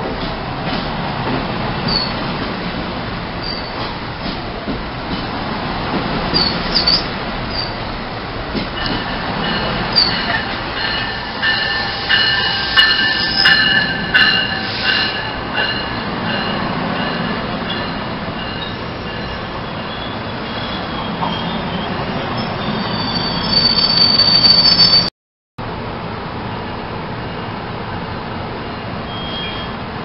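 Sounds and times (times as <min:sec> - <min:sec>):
train wheels rumbling on rail: 0:00.0 - 0:30.0
high wheel squeal: 0:08.8 - 0:16.7, 0:18.4 - 0:25.1, 0:29.0 - 0:29.8.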